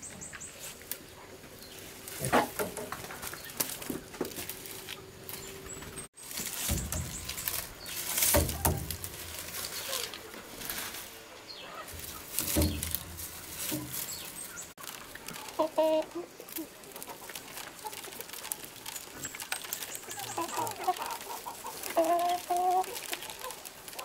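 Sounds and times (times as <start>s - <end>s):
dry corn husks rustling: 0.0s - 24.0s
corn cobs knocking: 6.4s - 9.2s, 12.3s - 13.1s
hen clucking: 13.6s - 24.0s.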